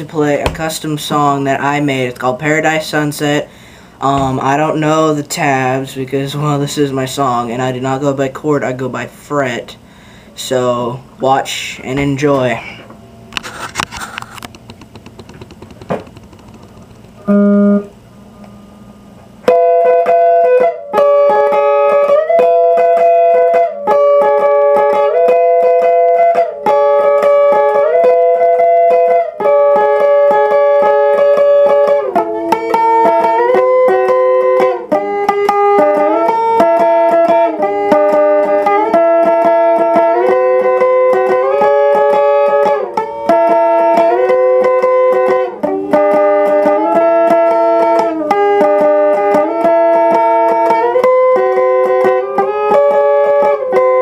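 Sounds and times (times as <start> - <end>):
faint guitar handling noise: 0.0 - 1.4, 11.7 - 18.6
electric guitar slow melody: 14.7 - 54.0.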